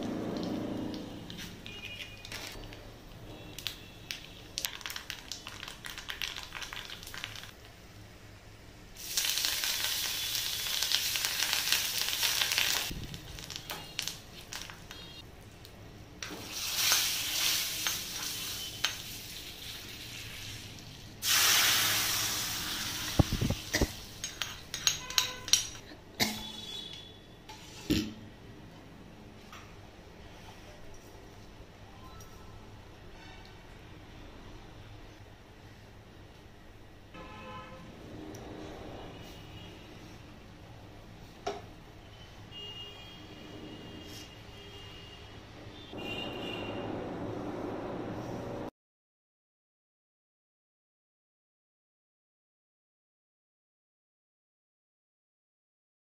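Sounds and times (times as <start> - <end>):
hot oil sizzling: 4.6 - 7.7, 8.9 - 15.0, 16.2 - 25.8.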